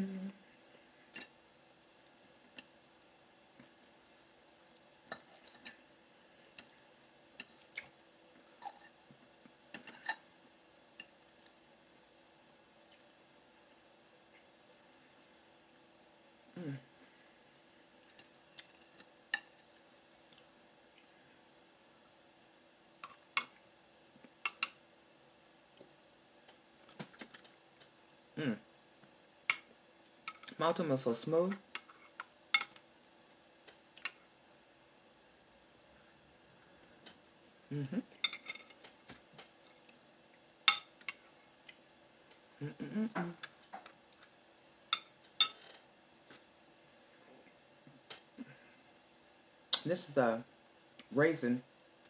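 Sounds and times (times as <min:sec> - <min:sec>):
mouth sound: 0:16.5 - 0:16.9, 0:28.4 - 0:28.7, 0:37.7 - 0:38.2, 0:42.6 - 0:43.5.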